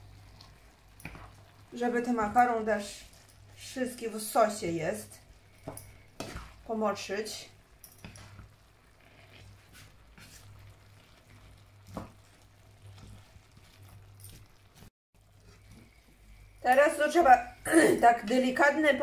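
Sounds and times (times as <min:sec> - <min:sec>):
faint sizzling: 0:00.0 - 0:19.0
utensils scraping a pan: 0:05.6 - 0:06.7, 0:09.0 - 0:16.0.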